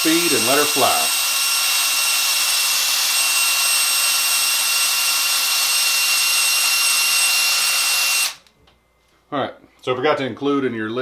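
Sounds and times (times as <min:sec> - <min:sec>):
cordless drill whining: 0:00.0 - 0:08.5.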